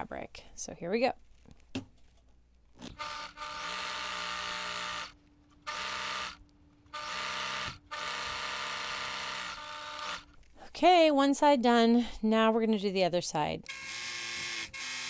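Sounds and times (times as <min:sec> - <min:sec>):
sewing machine stitching: 0:07.0 - 0:10.3.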